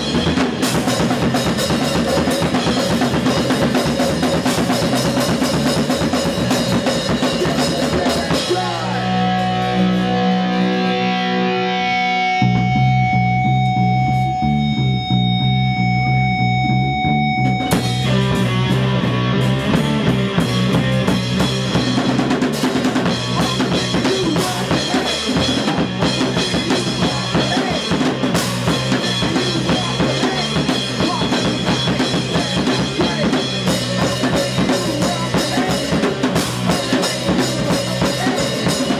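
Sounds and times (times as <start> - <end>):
live rock band playing: 0.0 - 38.9.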